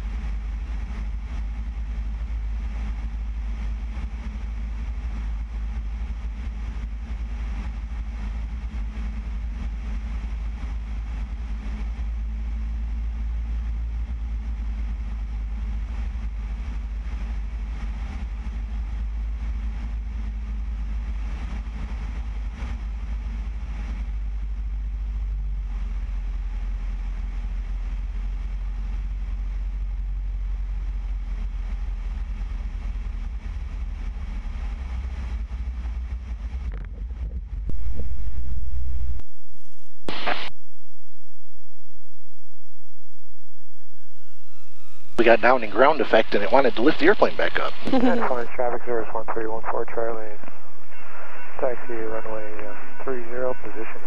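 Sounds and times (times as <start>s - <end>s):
light aircraft engine running: 0.0s - 40.5s, 41.2s - 54.0s
low rush of air: 37.7s - 54.0s.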